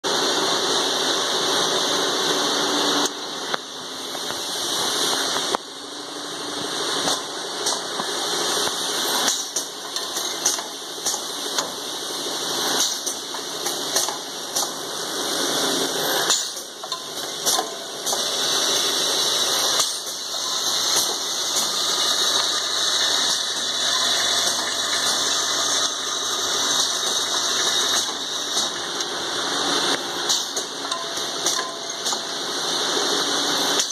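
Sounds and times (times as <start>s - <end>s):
drilling machine running: 8.1s - 33.9s.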